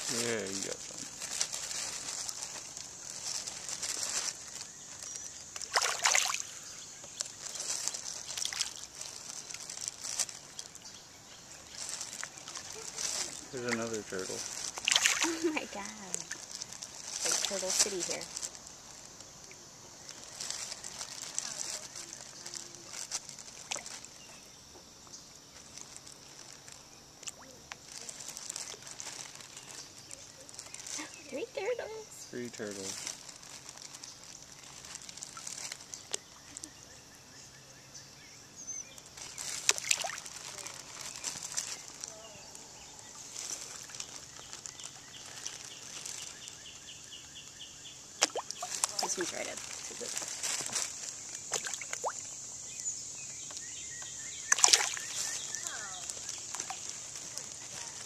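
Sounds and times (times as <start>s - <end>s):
fish gulping and splashing: 0.0s - 10.8s, 14.5s - 17.8s, 39.4s - 41.9s, 48.2s - 50.1s, 51.3s - 52.5s, 54.4s - 58.0s
steady high hiss: 0.0s - 27.0s
loud water splash: 5.7s - 6.4s, 14.8s - 15.4s.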